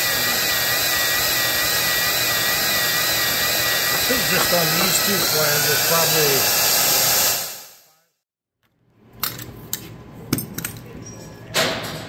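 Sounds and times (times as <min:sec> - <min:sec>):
drill press motor running: 0:00.0 - 0:07.5.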